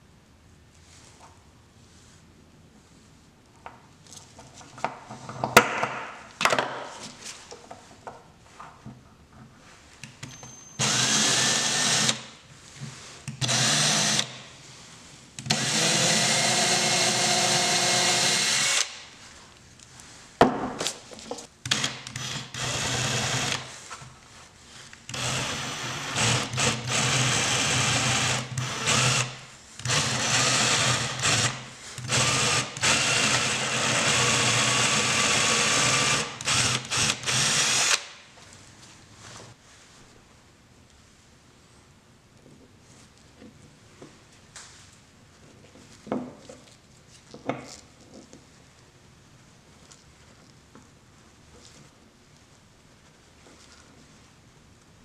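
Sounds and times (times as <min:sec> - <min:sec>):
electric drill boring into wood: 0:10.8 - 0:12.2, 0:13.4 - 0:14.4, 0:15.4 - 0:19.0, 0:21.7 - 0:23.7, 0:25.1 - 0:38.1.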